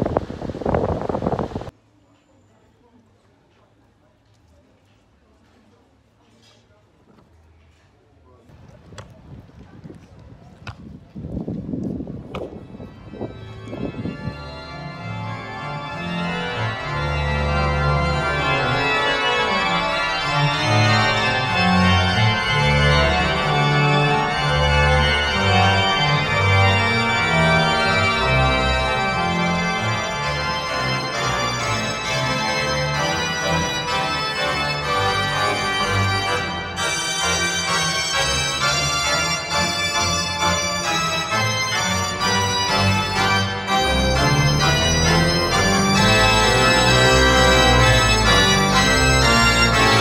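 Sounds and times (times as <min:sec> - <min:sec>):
organ-like keyboard chords: 0:12.8 - 0:50.0.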